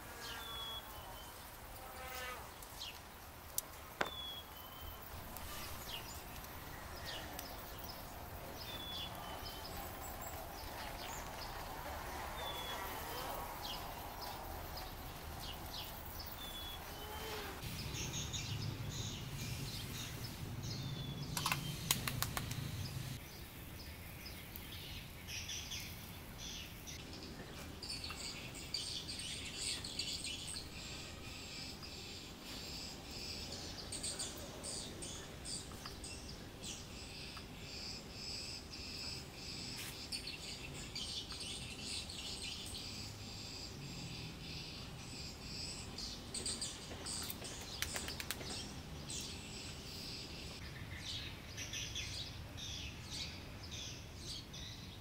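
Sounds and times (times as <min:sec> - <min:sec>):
birds chirping: 0:00.0 - 0:55.0
sharp clicks: 0:21.3 - 0:22.8.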